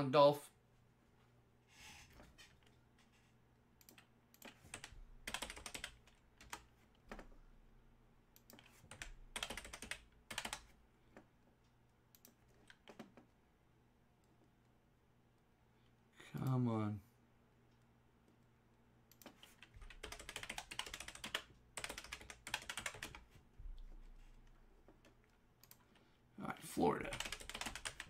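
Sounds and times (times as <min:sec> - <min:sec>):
computer keyboard typing: 0:03.8 - 0:07.3, 0:08.4 - 0:10.7, 0:19.1 - 0:23.3, 0:27.0 - 0:28.0.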